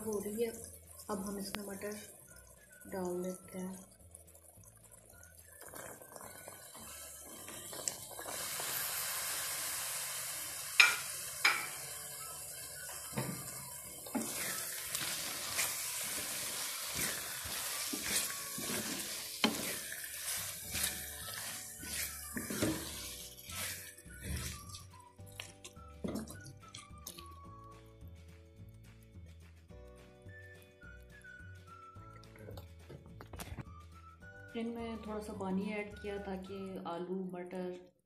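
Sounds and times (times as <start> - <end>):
vegetables sizzling in a pan: 0.0 - 24.9
spatula knocking and scraping pan: 10.8 - 11.8, 16.2 - 24.6.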